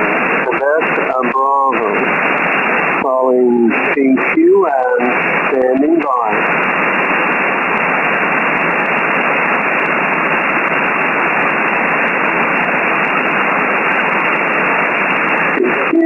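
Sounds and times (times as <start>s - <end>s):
radio static hiss: 0.0s - 16.0s.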